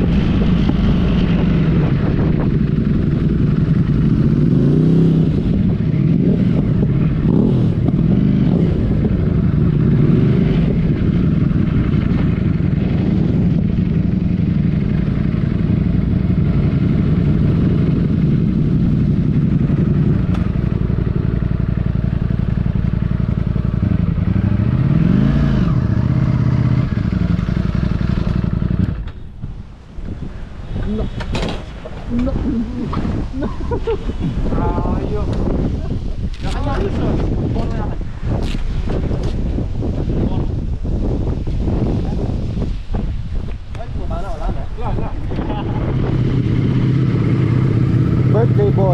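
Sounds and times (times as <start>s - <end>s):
motorcycle engine running: 0.0s - 29.1s, 45.3s - 48.9s.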